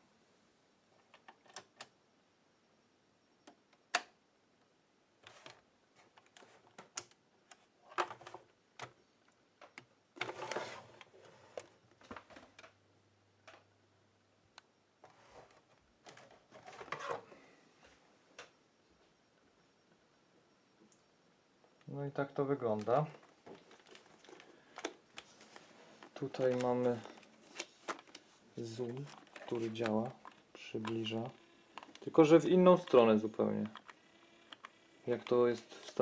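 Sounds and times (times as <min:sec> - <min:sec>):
rustling: 0:05.2 - 0:12.8, 0:14.4 - 0:36.0
video equipment clicks: 0:14.5 - 0:17.2, 0:22.6 - 0:28.2, 0:28.9 - 0:32.2, 0:32.8 - 0:36.0.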